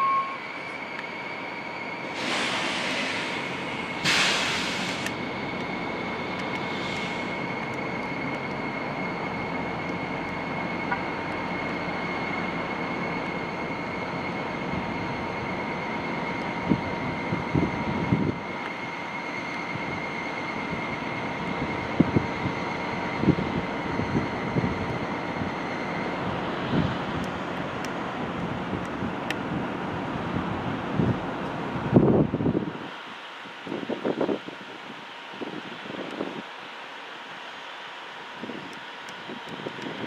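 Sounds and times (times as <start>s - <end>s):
short hiss: 2.2s - 5.2s.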